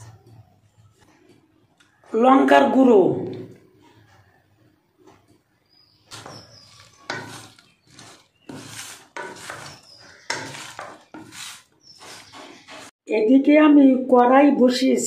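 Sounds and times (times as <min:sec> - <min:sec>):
food stirred in a metal bowl: 0:05.2 - 0:13.0.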